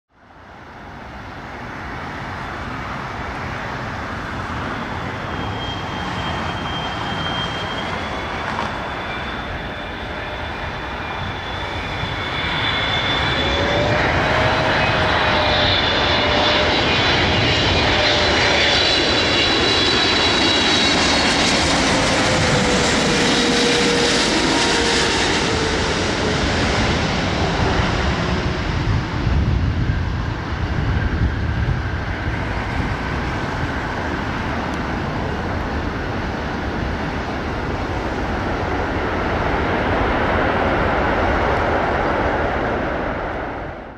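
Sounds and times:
jet engines rumbling and whining: 0:00.1 - 0:43.9.

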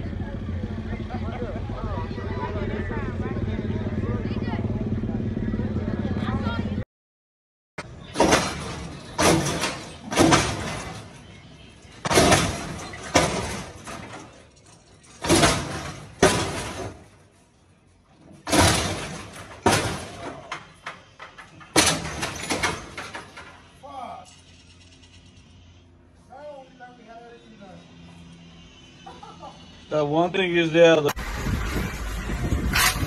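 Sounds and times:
heavy bangs with clatter: 0:07.8 - 0:17.2, 0:18.2 - 0:23.7.

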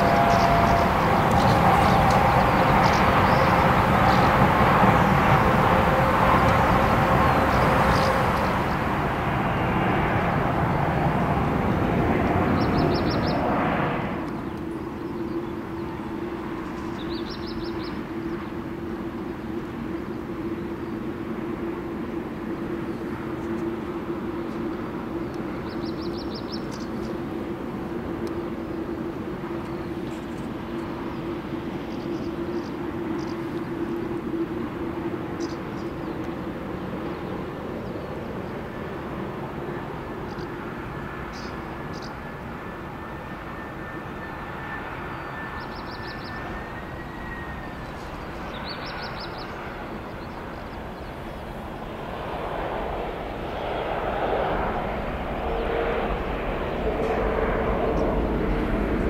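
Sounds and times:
jet engines running with whine: 0:00.0 - 0:59.0
bird chirps: 0:45.0 - 0:50.4.

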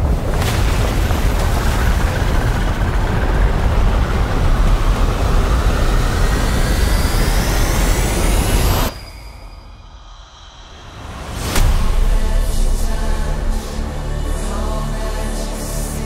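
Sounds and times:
deep rumble: 0:00.0 - 0:08.9, 0:09.6 - 0:16.0
thin rising whine: 0:03.2 - 0:15.0.

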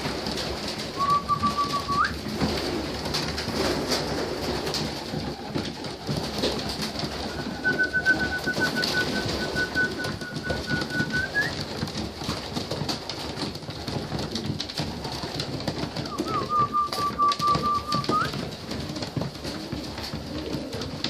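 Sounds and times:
pigeons cooing: 0:00.8 - 0:11.6, 0:15.1 - 0:21.0
high whistle-like tone: 0:07.6 - 0:11.5.

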